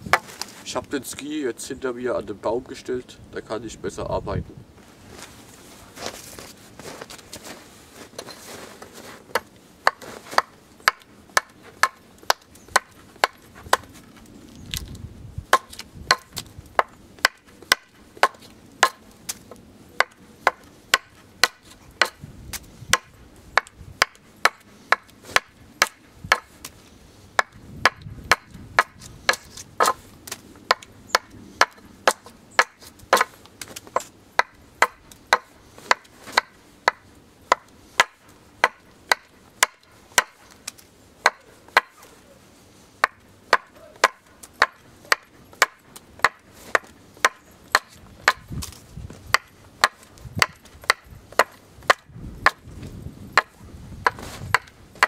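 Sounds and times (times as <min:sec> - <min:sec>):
hatchet chopping wood: 0:09.3 - 0:13.9, 0:15.5 - 0:26.7, 0:27.4 - 0:42.1, 0:43.0 - 0:52.7, 0:53.3 - 0:55.0.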